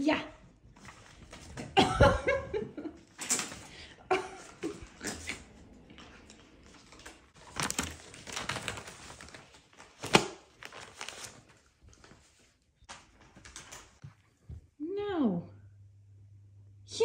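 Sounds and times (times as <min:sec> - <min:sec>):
paper rustling and crinkling: 0:05.9 - 0:14.1.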